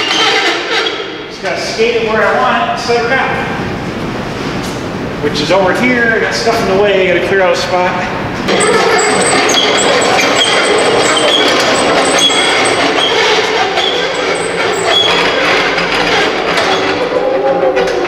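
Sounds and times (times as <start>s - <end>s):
dolly wheels rumbling on concrete: 8.4s - 18.0s
short high squeaks: 8.5s - 17.1s.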